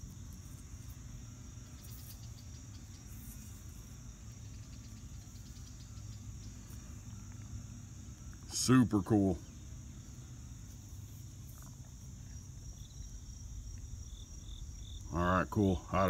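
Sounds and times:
insects chirring: 0.0s - 16.0s
faint low rumble: 9.4s - 16.0s.

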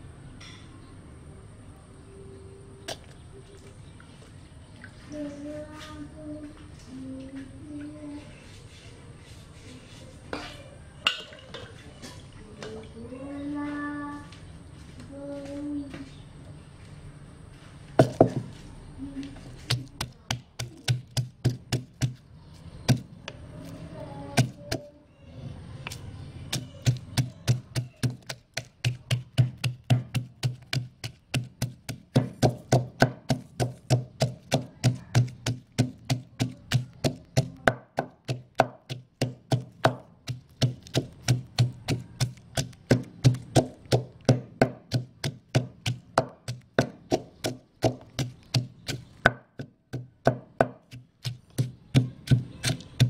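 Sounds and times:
wooden pestle pounding in mortar: 18.0s - 18.5s, 19.7s - 22.2s, 22.8s - 23.2s, 24.3s - 24.8s, 26.5s - 53.0s.

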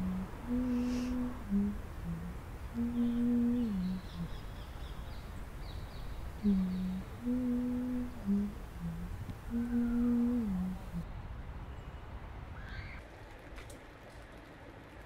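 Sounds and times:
person humming a slow tune: 0.0s - 4.5s, 6.4s - 11.0s
steady low rumble: 0.0s - 11.6s.

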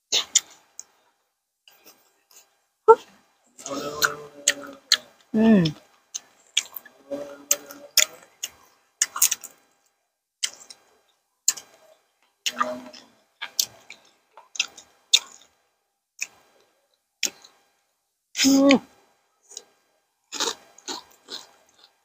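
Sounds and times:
crunchy chewing: 1.7s - 6.9s, 7.5s - 9.7s, 10.4s - 15.6s, 16.2s - 17.8s, 18.8s - 22.0s.

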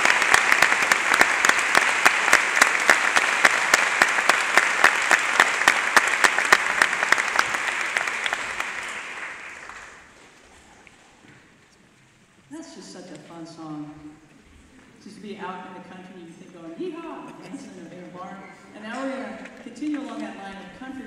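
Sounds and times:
close single hand claps: 0.0s - 10.0s
audience applauding: 0.0s - 10.4s.

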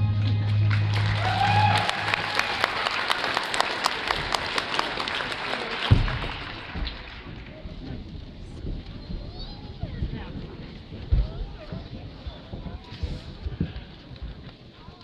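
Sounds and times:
audience clapping: 0.2s - 7.8s.

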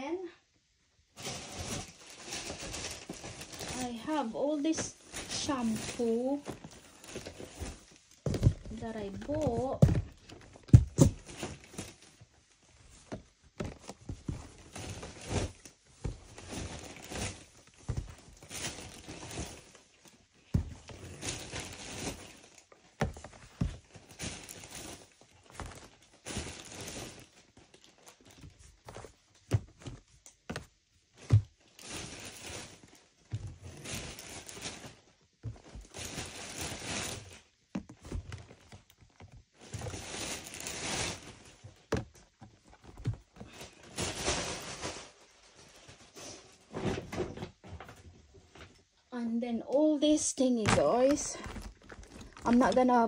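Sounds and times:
rustling: 1.1s - 48.6s, 49.7s - 53.0s
plastic bottles knocking in box: 4.8s - 11.8s, 50.6s - 52.9s.

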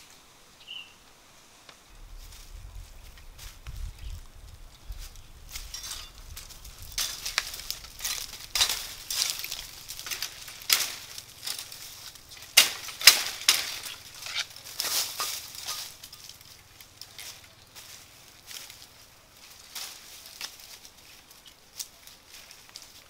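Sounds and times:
dry leaves and twigs crunching: 1.7s - 23.0s.

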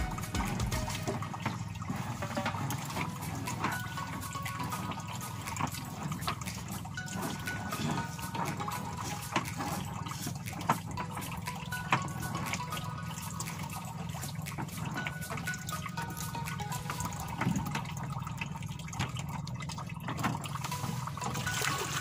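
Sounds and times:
water lapping against boat hull: 0.0s - 22.0s.

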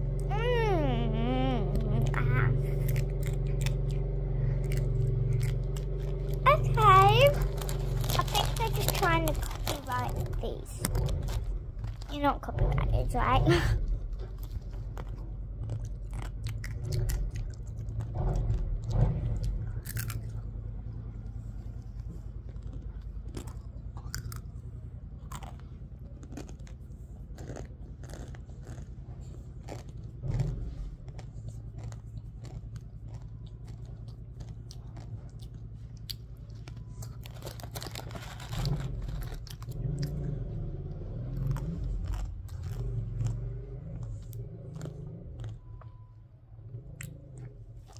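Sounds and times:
steady low hum: 0.0s - 47.9s
person crunching crisp snack: 2.0s - 12.1s, 19.4s - 20.6s, 22.4s - 40.3s, 41.2s - 45.6s.

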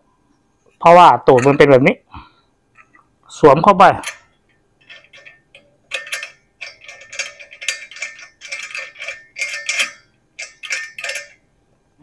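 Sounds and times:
small metallic clicks and scrapes: 2.7s - 3.1s, 4.0s - 11.4s.

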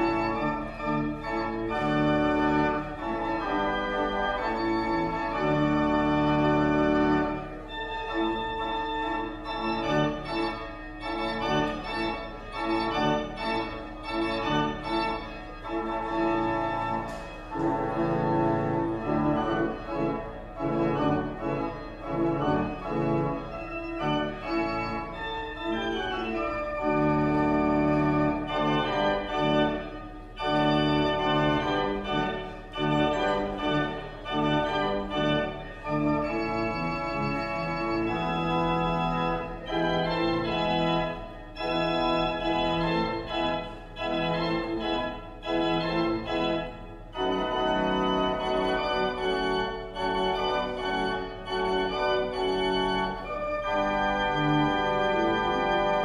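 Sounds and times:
organ playing held chords: 0.0s - 56.0s.

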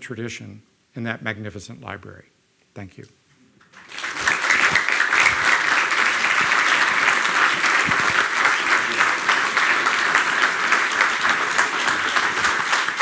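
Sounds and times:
audience clapping: 3.6s - 13.0s.

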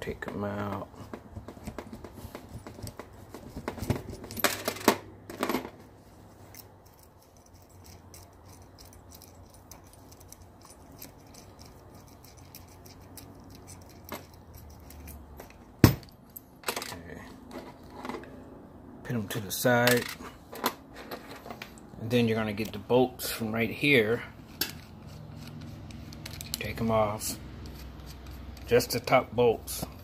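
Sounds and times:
metal bolts clinking: 1.6s - 5.8s, 24.5s - 30.0s.

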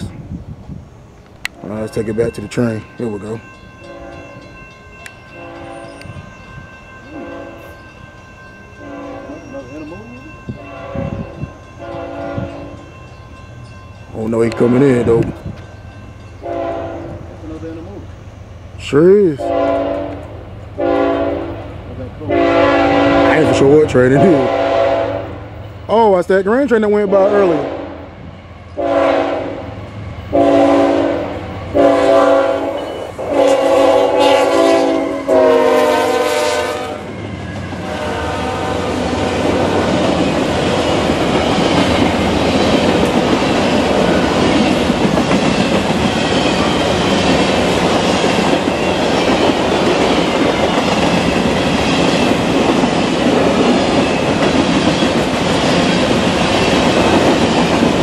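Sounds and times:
locomotive air horn blasts: 5.4s - 6.0s, 7.1s - 7.7s, 8.8s - 9.4s, 10.6s - 12.7s, 16.4s - 17.2s, 19.4s - 20.2s, 20.8s - 21.6s, 22.3s - 25.4s, 28.8s - 29.6s, 30.3s - 37.1s, 37.8s - 39.5s
train wheel clatter on rails: 38.9s - 58.0s.

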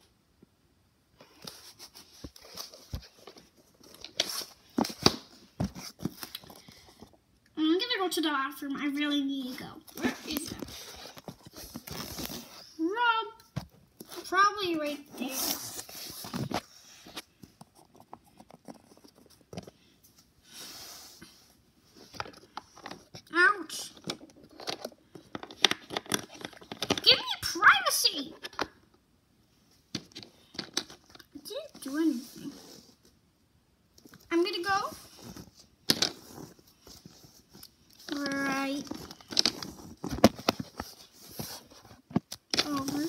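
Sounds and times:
soft rustle: 1.2s - 7.1s, 31.4s - 33.2s, 34.0s - 43.0s.

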